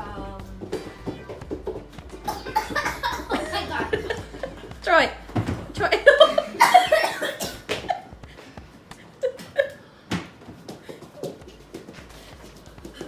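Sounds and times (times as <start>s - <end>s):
child coughing: 2.2s - 3.3s, 6.6s - 7.8s.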